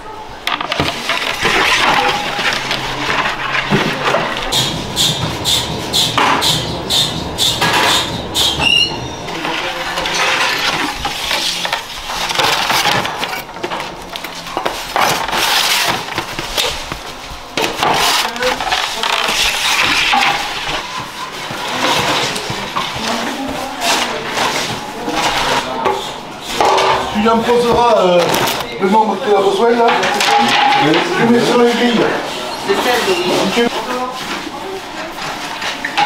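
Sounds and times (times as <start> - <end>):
metal bread tins clattering: 9.3 - 13.3.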